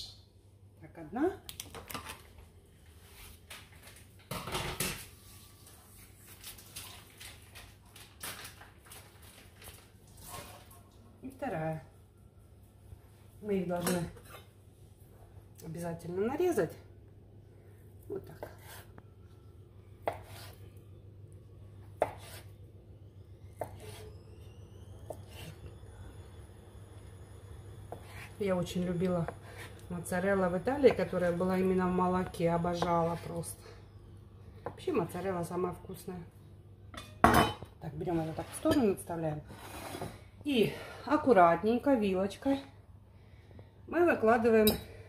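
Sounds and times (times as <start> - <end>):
low steady hum: 0.0 - 45.0
rustling scrape: 38.1 - 38.7, 39.5 - 40.2.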